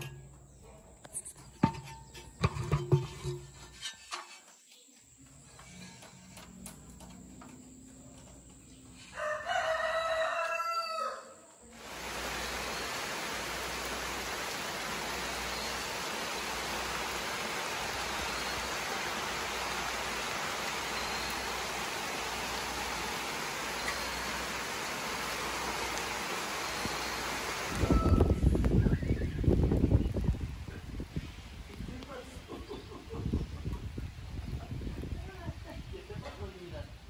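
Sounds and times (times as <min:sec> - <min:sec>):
rooster crowing: 0:09.1 - 0:11.5, 0:27.4 - 0:28.5
steady rushing hiss: 0:11.8 - 0:33.3.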